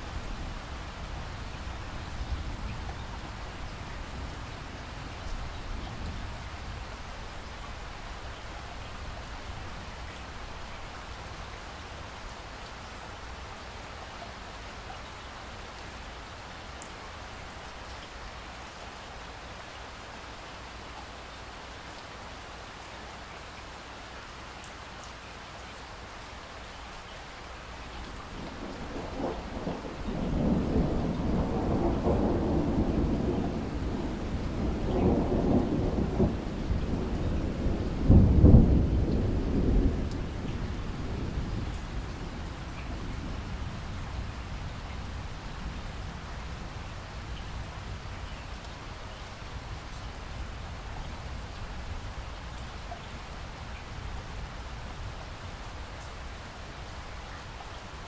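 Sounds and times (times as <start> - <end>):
steady rain falling: 0.0 - 58.0
thunder rumbling: 28.3 - 46.9.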